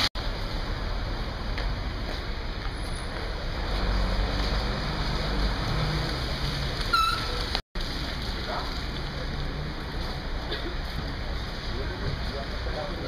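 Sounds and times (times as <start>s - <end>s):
short high squeak: 6.9s - 7.4s.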